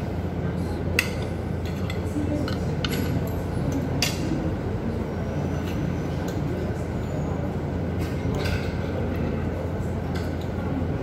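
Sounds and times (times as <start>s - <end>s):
forks clinking on plates: 1.0s - 4.4s, 8.0s - 9.0s.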